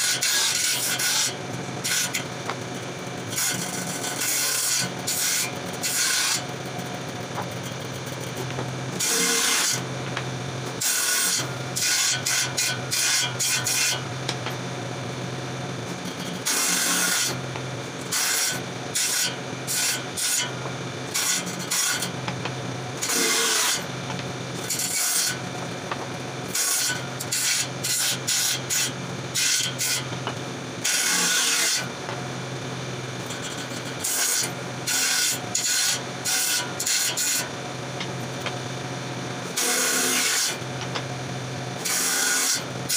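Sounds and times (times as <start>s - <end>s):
saw blade cutting wood: 0.0s - 2.3s, 3.3s - 6.5s, 7.4s - 9.9s, 10.7s - 14.1s, 16.0s - 17.4s, 18.1s - 22.2s, 23.0s - 23.9s, 24.6s - 25.4s, 26.5s - 31.9s, 33.2s - 38.1s, 39.5s - 41.0s, 41.8s - 42.9s
power saw humming: 0.0s - 38.7s, 39.5s - 41.2s.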